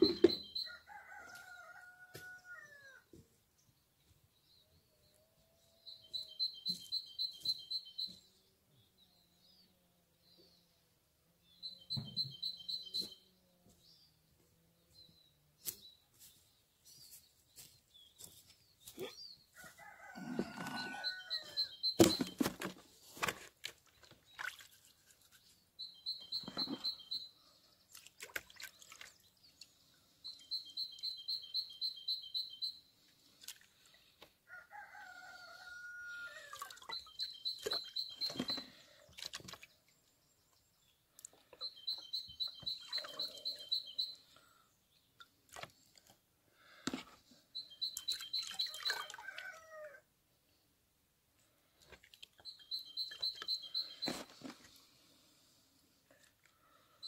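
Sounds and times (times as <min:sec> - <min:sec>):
rooster crowing: 0:00.6 - 0:03.0, 0:19.6 - 0:21.7, 0:34.5 - 0:36.6
songbird trilling: 0:41.5 - 0:44.2.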